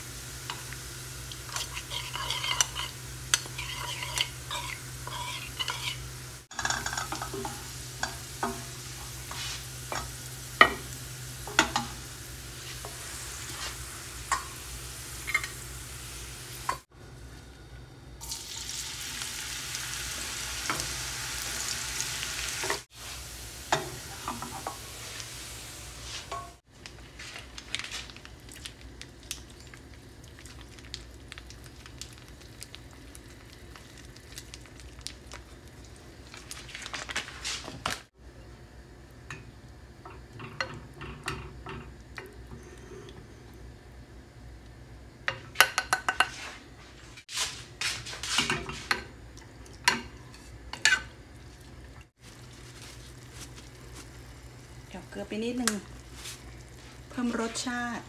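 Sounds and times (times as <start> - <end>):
hot oil sizzling in a pan: 0.0 - 16.9, 18.2 - 26.7, 52.0 - 58.0.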